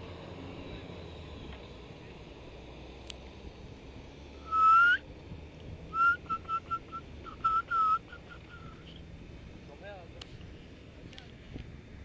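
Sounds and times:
person whistling: 0:04.4 - 0:05.0, 0:06.0 - 0:08.8.

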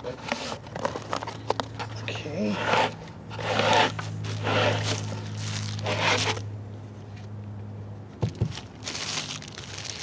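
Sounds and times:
plastic wrapping crinkling: 0:04.2 - 0:06.4, 0:08.3 - 0:10.0.

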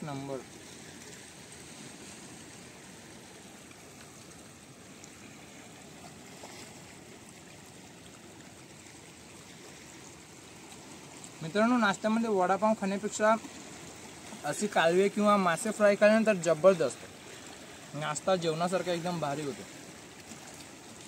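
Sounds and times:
seawater trickling among rocks: 0:00.0 - 0:21.0.

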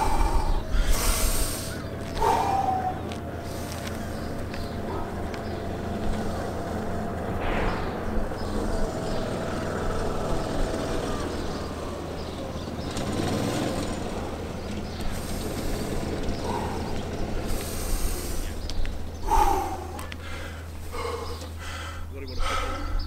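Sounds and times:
man panting: 0:00.0 - 0:07.0, 0:14.0 - 0:23.0.

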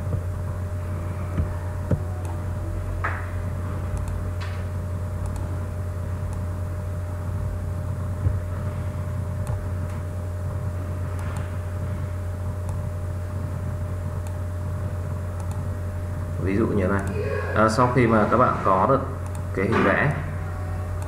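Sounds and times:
low electrical hum: 0:00.0 - 0:21.0
computer mouse clicks: 0:04.0 - 0:04.2, 0:05.2 - 0:05.4, 0:11.1 - 0:11.5, 0:15.4 - 0:15.6.

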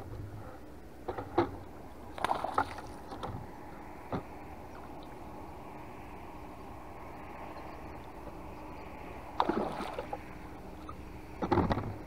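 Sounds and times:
low wash of water: 0:01.5 - 0:12.0
water splashing: 0:02.1 - 0:03.3, 0:09.3 - 0:11.8.

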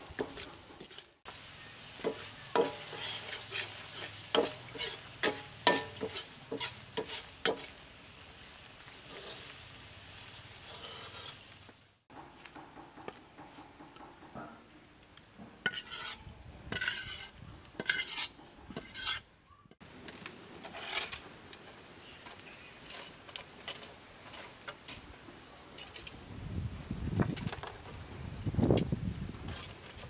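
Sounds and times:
metal wok scraping and clinking: 0:00.0 - 0:07.8, 0:09.0 - 0:09.7, 0:10.6 - 0:11.6, 0:15.6 - 0:19.3, 0:20.6 - 0:25.1, 0:25.7 - 0:26.2.

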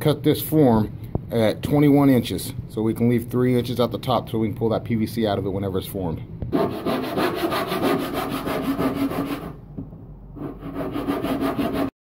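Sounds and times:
saw rasping through cardboard tube: 0:06.5 - 0:09.6, 0:10.4 - 0:12.0.

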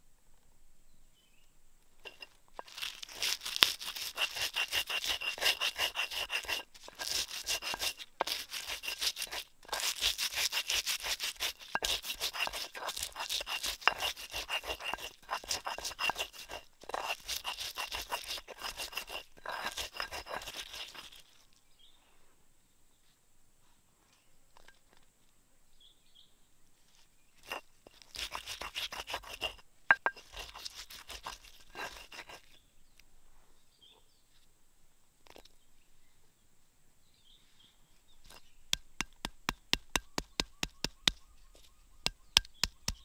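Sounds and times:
pestle grinding on stone mortar: 0:02.1 - 0:21.4, 0:27.4 - 0:32.6, 0:38.3 - 0:43.0.

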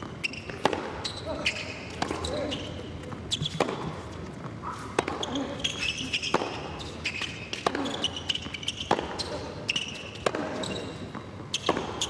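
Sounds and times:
shoe squeaks on court: 0:00.2 - 0:03.9, 0:04.7 - 0:12.0
racket striking tennis ball: 0:00.3 - 0:01.0, 0:01.9 - 0:02.6, 0:03.3 - 0:04.0, 0:04.8 - 0:05.4, 0:06.2 - 0:09.4, 0:10.1 - 0:12.0.

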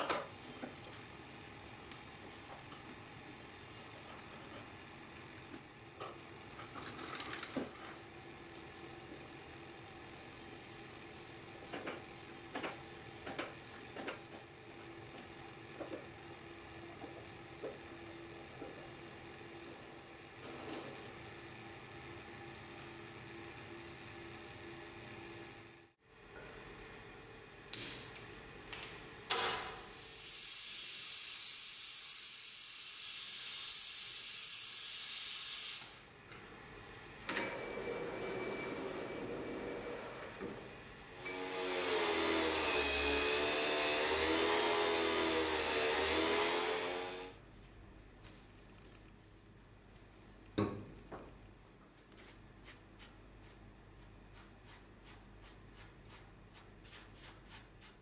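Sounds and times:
gas torch flame hissing: 0:29.8 - 0:36.1.

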